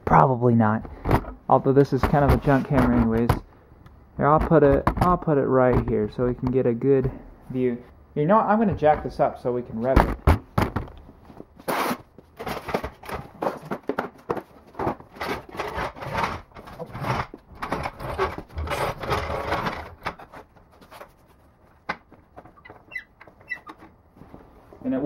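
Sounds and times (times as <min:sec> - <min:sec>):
floor jack squeaks and clunks: 0:15.1 - 0:21.0, 0:22.4 - 0:24.0.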